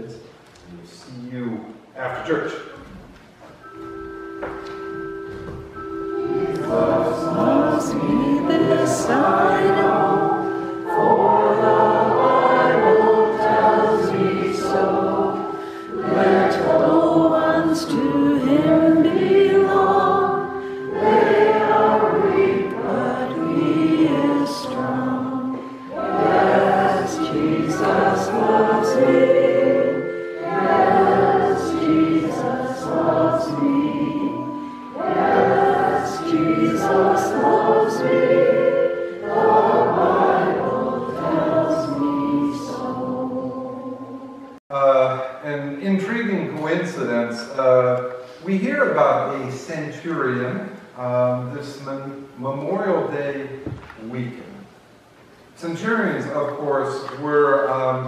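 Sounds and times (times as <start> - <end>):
keyboard accompaniment: 3.2 - 44.6
congregation singing a hymn: 3.6 - 45.3.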